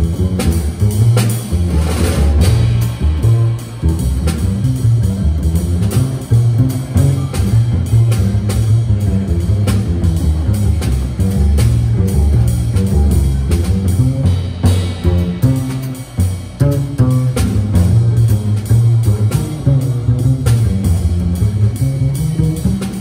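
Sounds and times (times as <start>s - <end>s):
drums with light cymbal: 0.0s - 23.0s
plucked upright bass: 0.0s - 23.0s.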